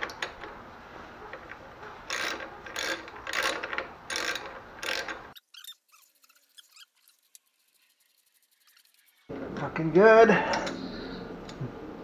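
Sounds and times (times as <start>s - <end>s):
socket wrench ratchet clicking: 2.1s - 5.2s.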